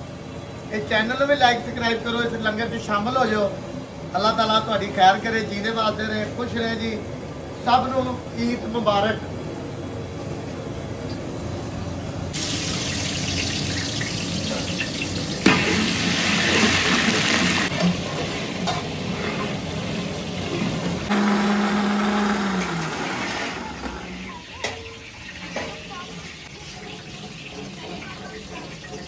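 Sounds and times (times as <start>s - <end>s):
chicken sizzling in oil: 12.3s - 21.1s, 22.8s - 29.0s.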